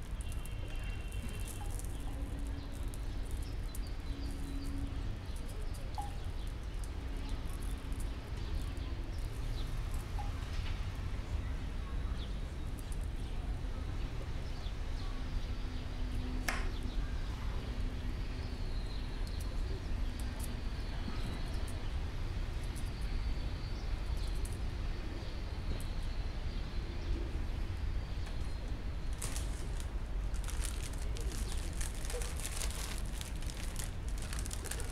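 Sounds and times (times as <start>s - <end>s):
low background rumble: 27.3s - 34.9s.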